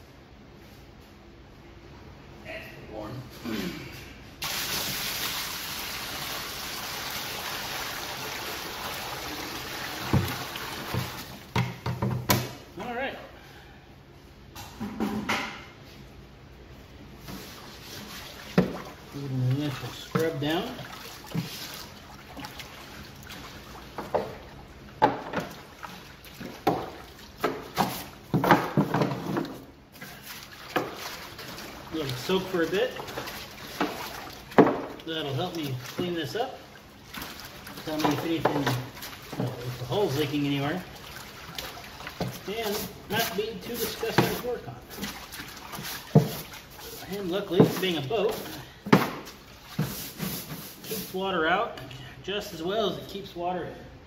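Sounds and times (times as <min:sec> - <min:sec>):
water pouring and splashing: 0:04.4 - 0:11.5, 0:17.4 - 0:51.2.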